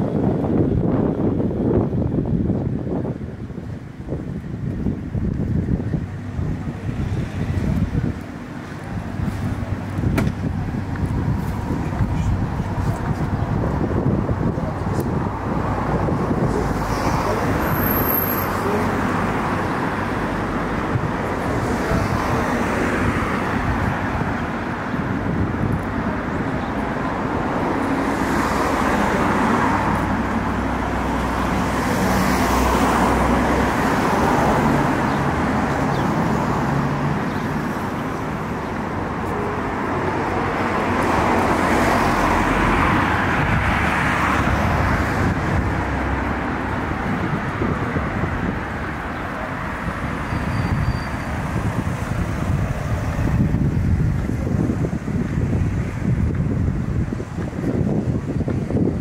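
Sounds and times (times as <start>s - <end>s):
road traffic: 0.0s - 59.0s.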